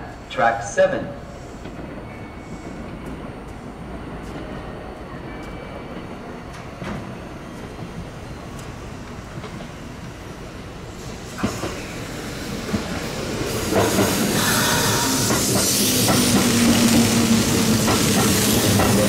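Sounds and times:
train hiss: 0:00.0 - 0:01.8, 0:10.8 - 0:19.0
train hum: 0:00.0 - 0:19.0
train wheels clacking: 0:12.6 - 0:19.0.

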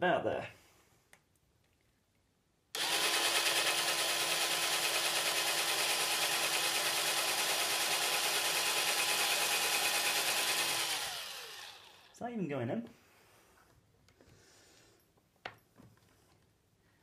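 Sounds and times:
cordless drill whining: 0:02.7 - 0:12.2.

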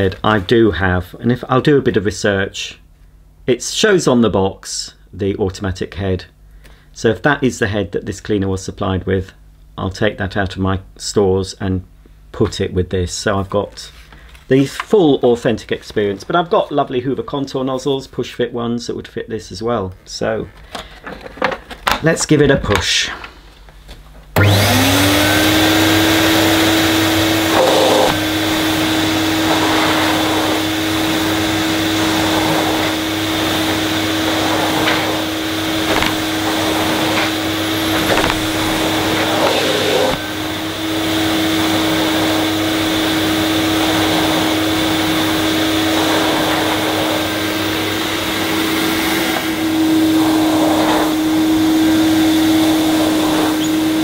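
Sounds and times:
vacuum cleaner motor whine: 0:24.4 - 0:54.0
vacuum nozzle on carpet: 0:24.4 - 0:54.0.

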